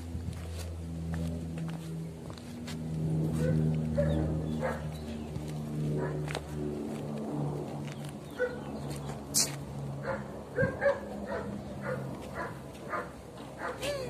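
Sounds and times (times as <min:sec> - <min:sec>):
dog barking and yelping: 0:03.4 - 0:04.9, 0:08.4 - 0:08.6, 0:10.0 - 0:14.0.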